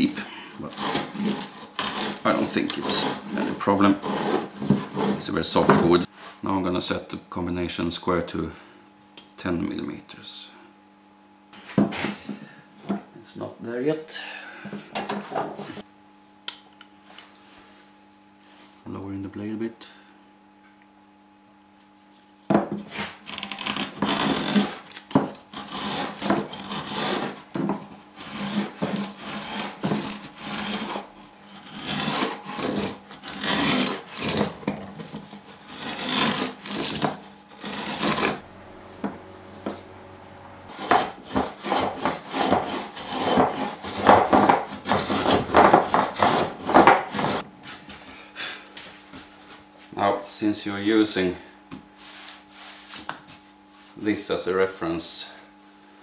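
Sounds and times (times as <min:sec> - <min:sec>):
router plane scraping wood: 0:00.0 - 0:06.4, 0:22.8 - 0:47.5.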